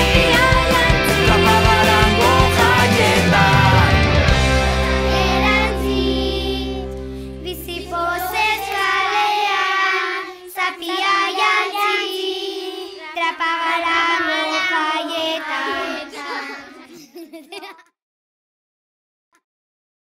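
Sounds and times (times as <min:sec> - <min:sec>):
song's final chord: 0:00.0 - 0:09.2
children singing unaccompanied: 0:00.0 - 0:17.0.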